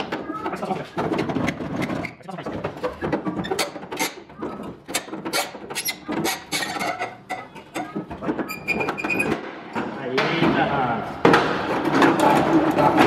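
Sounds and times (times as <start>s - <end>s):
door hinge squeaks: 2.8s - 9.4s.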